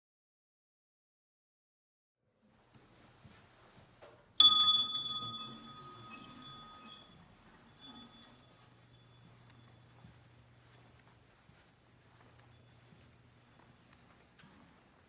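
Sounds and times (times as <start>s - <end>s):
small bell ringing: 4.4s - 10.9s, 12.4s - 13.6s.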